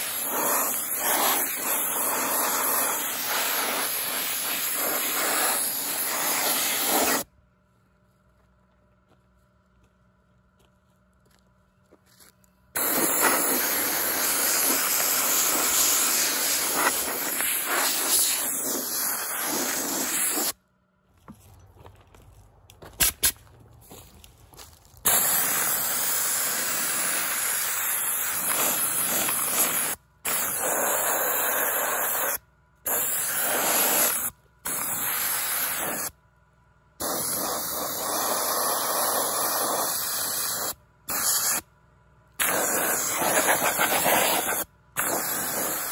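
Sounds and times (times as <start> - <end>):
air blaster hissing: 0.0 - 7.3, 12.8 - 20.6, 25.1 - 36.1, 37.0 - 41.6, 42.4 - 45.9.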